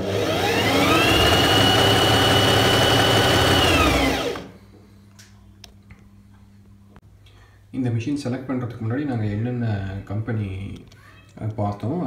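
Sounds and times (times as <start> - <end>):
sewing machine whine: 0.0 - 4.6.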